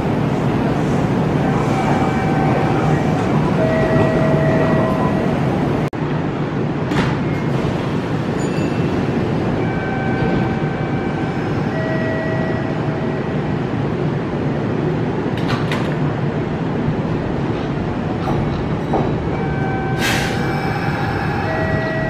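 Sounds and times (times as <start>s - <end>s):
train equipment humming: 0.0s - 22.0s.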